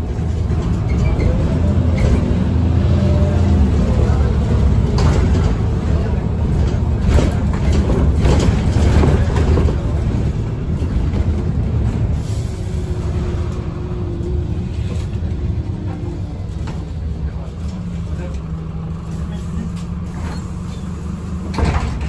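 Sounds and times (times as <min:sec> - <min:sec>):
bus engine droning: 0:00.0 - 0:22.0.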